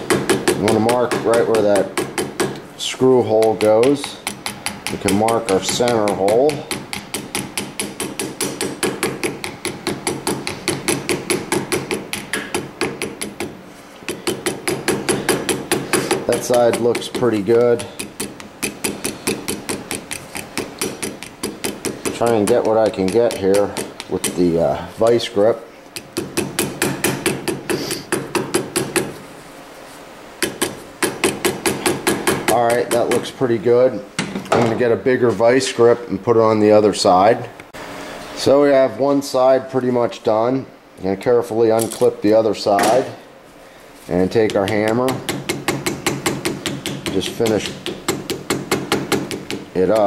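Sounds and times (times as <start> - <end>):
hammer tapping on metal: 0.0 - 2.6, 3.2 - 25.2, 26.0 - 29.2, 30.4 - 33.2, 44.4 - 50.0.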